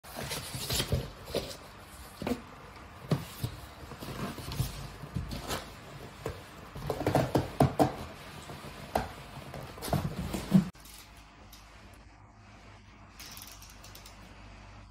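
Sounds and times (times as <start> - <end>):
knocks and taps on cardboard: 6.8 - 8.1.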